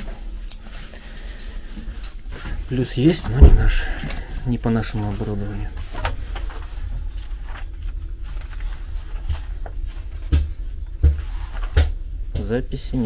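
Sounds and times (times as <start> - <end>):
steady low hum: 0.0 - 13.0
heavy thumps: 3.2 - 4.2.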